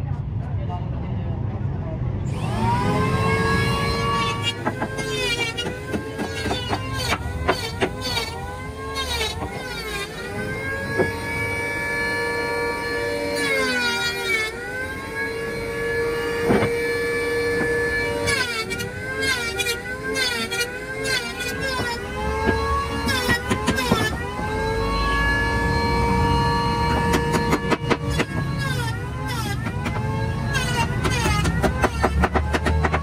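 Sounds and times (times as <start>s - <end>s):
electric planer motor whining: 2.3s - 33.0s
sharp knocks: 16.4s - 16.8s, 30.6s - 33.0s.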